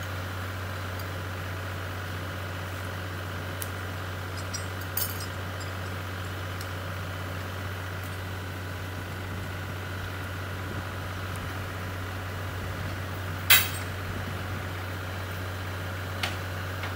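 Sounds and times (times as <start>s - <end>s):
short metallic clink: 13.5s - 13.9s.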